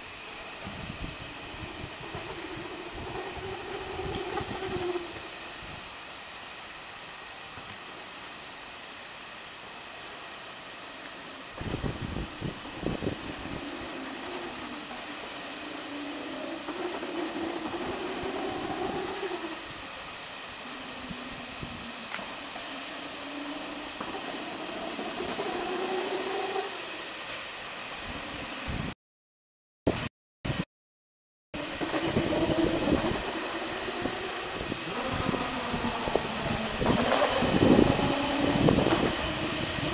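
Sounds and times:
boxes rolling on roller conveyor: 0:00.0 - 0:05.9, 0:11.1 - 0:27.4, 0:31.6 - 0:39.9
steady hiss: 0:00.0 - 0:29.0, 0:31.6 - 0:39.9.

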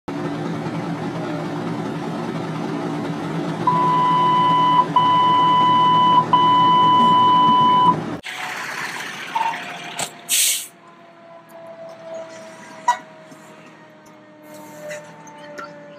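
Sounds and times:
vehicle engine hum: 0:00.1 - 0:15.9
long electronic beeps: 0:03.7 - 0:08.0.

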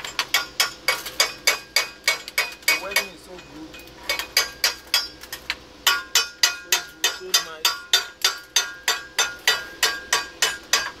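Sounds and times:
hammer tapping metal pipe: 0:05.9 - 0:11.0.

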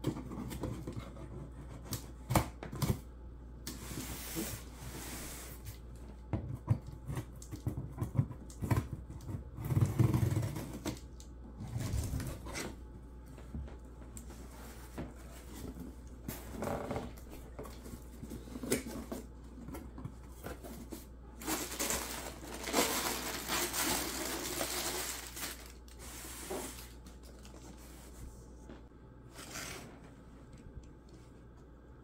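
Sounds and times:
packing paper rustling: 0:20.4 - 0:28.1.

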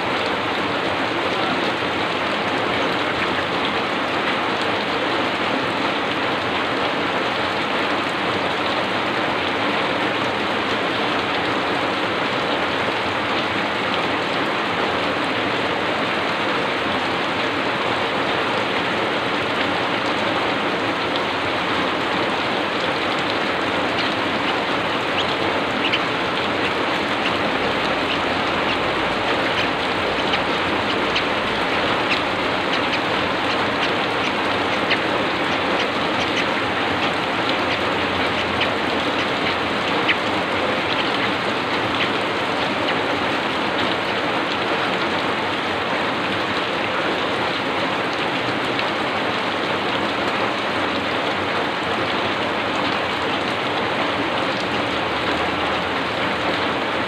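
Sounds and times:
heavy rain: 0:00.0 - 0:57.0
raindrop taps: 0:23.1 - 0:41.3.

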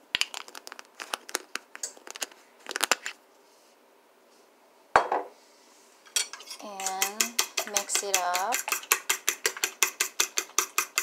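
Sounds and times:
jar knocking on countertop: 0:05.0 - 0:05.3.

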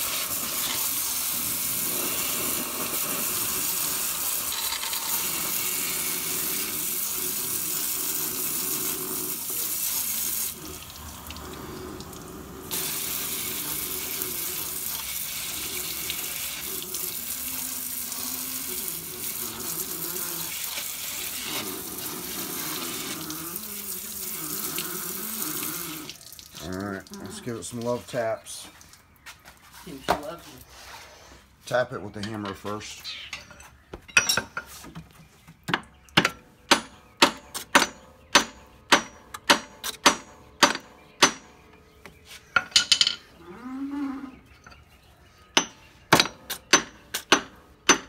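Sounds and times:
gas torch flame hissing: 0:11.3 - 0:17.2.

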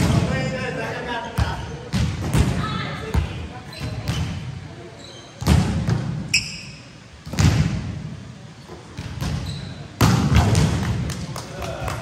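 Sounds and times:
volleyball hits on gym floor: 0:01.4 - 0:04.4, 0:05.4 - 0:06.3, 0:07.2 - 0:07.9, 0:09.0 - 0:11.4
short high squeak: 0:06.3 - 0:06.9.

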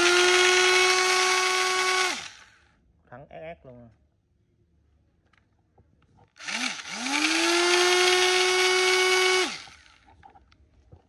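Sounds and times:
electric drill whining: 0:00.0 - 0:02.6, 0:06.4 - 0:10.1.

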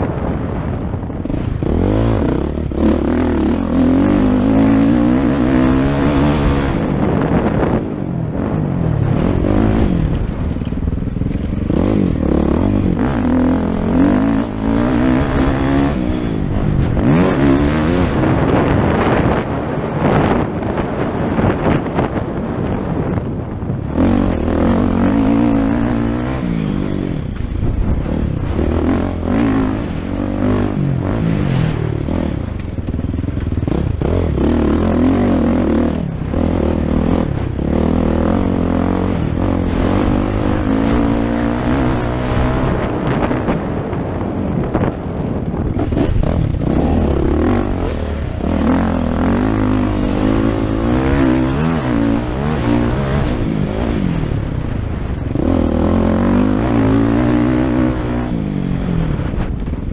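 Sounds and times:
motocross bike engine revving: 0:01.2 - 0:07.8, 0:09.0 - 0:44.2, 0:45.4 - 0:59.7.

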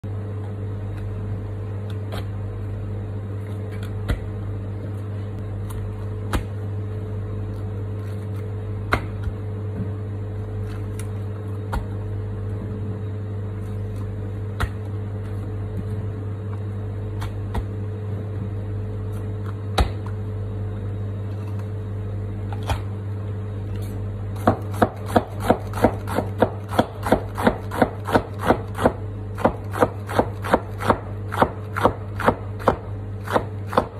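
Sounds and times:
steady low hum: 0:00.0 - 0:33.9.

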